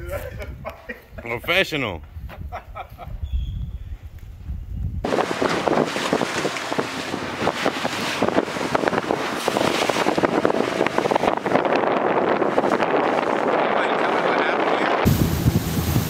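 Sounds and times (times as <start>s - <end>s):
wind buffeting microphone: 0.0s - 16.0s
water splashing against boat hull: 5.1s - 16.0s.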